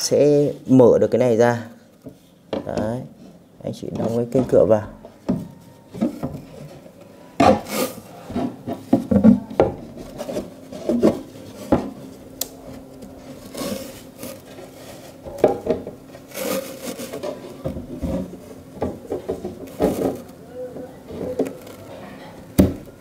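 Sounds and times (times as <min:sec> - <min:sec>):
wooden board scraping: 0:07.4 - 0:12.1, 0:13.2 - 0:18.5.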